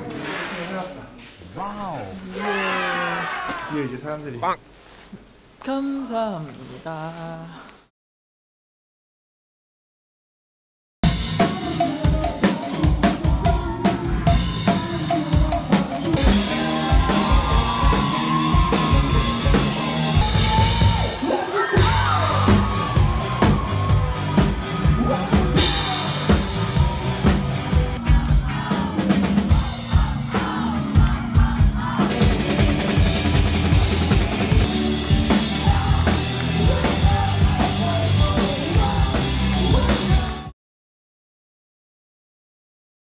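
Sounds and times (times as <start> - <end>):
rock band playing live: 11.0 - 40.5.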